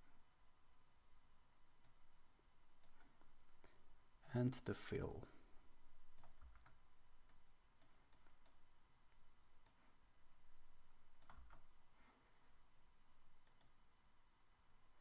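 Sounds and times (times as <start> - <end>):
keyboard and mouse clicking: 6.1 - 8.6, 11.1 - 11.7, 13.4 - 13.8.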